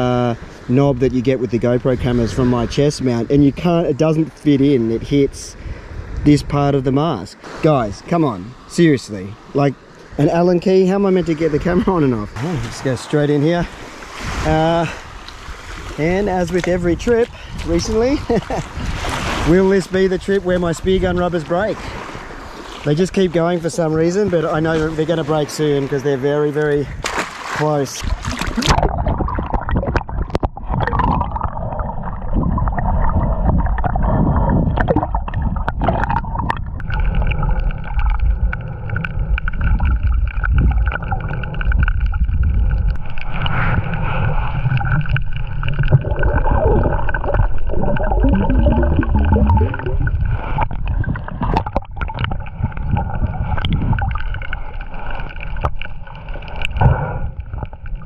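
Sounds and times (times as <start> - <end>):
muffled underwater water gurgling: 28.0 - 58.0.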